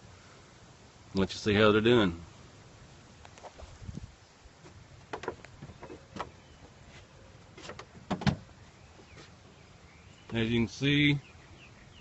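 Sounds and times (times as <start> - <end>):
plants rustling against phone: 3.2 - 9.6.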